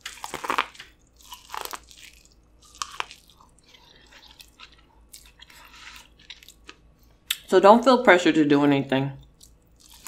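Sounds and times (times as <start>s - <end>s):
crunchy bite: 0.0s - 6.8s, 9.4s - 10.0s
chewing with small crunches: 0.0s - 7.5s, 9.2s - 10.0s.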